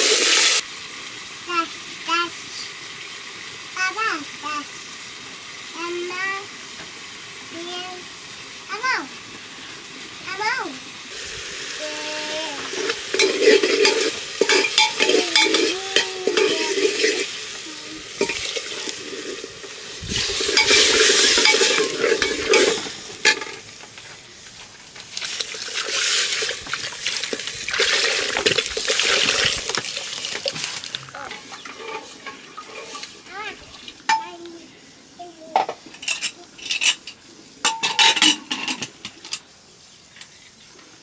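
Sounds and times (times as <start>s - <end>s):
food sizzling in a pan: 0.0s - 41.0s
spoon scraping a pan: 12.5s - 23.7s, 28.1s - 33.2s.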